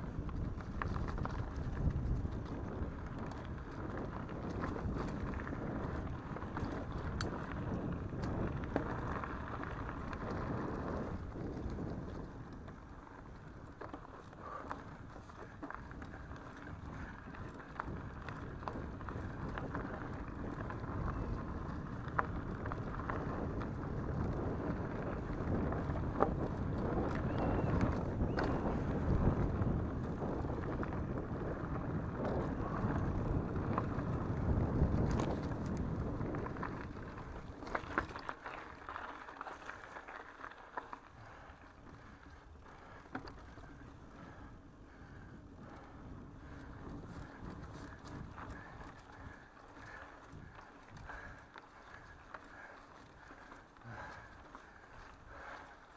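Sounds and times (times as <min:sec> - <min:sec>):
wind on microphone: 0:00.0 - 0:40.0, 0:41.1 - 0:55.7
bike clicks and rattles: 0:00.0 - 0:55.9
bike tyres rolling on dirt: 0:00.0 - 0:55.9.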